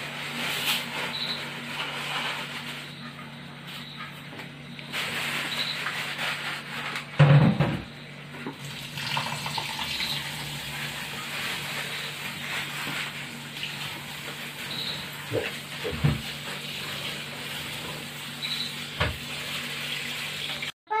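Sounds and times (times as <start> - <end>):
tap water running into bowl: 8.4 - 10.9.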